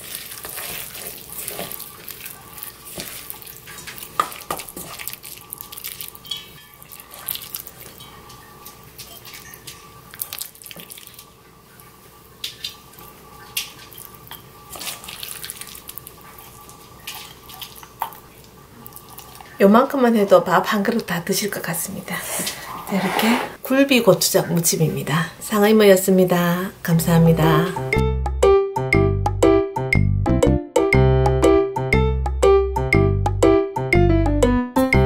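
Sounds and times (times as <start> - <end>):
wet squishing and scraping: 0.0 - 19.6.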